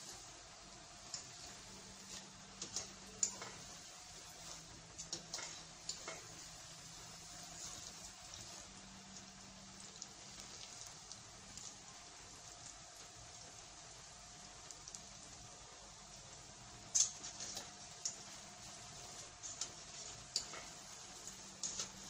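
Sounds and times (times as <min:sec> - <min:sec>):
nuts deep-frying crackling hiss: 0:00.0 - 0:22.0
metal skimmer stirring pops: 0:01.0 - 0:06.4, 0:16.9 - 0:22.0.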